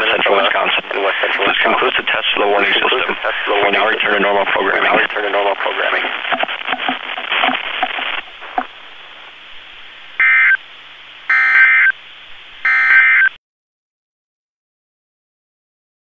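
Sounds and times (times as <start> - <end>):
radio hiss: 0.0 - 13.3
loud buzzing data bursts: 10.1 - 13.4.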